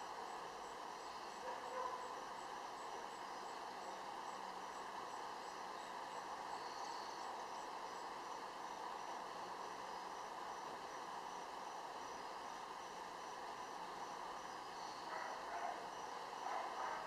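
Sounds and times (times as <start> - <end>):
faint high insect chirp: 0.0 - 17.0
outdoor background noise: 0.0 - 17.0.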